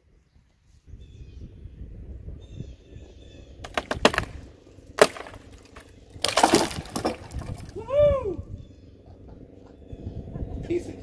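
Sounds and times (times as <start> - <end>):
branches crashing to ground: 3.6 - 4.4, 5.0 - 7.9
wood cracking and splintering: 3.6 - 7.8.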